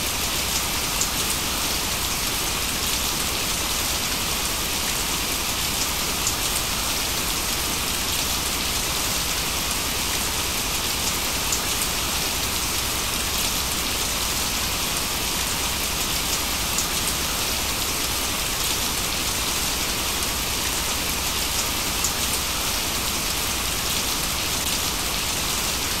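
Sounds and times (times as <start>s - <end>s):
steady rain: 0.0s - 26.0s
rain drops ticking: 14.9s - 17.1s, 19.7s - 23.0s.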